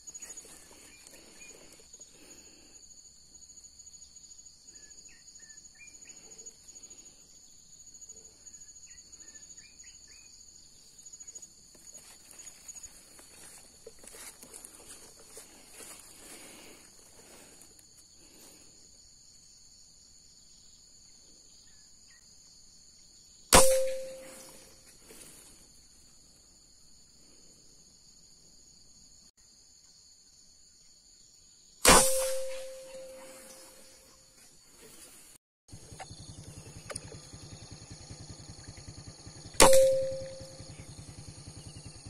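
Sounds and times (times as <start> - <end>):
insects droning: 0.0 - 42.0
air rifle shot: 23.5 - 24.6, 31.8 - 33.6, 39.6 - 40.5
brief ringing tone: 39.6 - 40.6.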